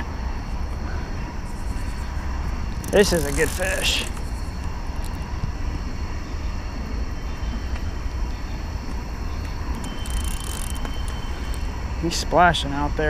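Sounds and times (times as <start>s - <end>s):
low rumble and hiss: 0.0s - 13.0s
fishing reel cranking: 2.7s - 5.2s, 9.7s - 11.6s.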